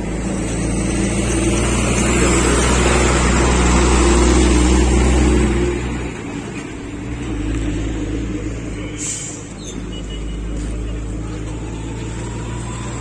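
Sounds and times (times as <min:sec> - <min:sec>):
truck driving past: 0:00.0 - 0:13.0.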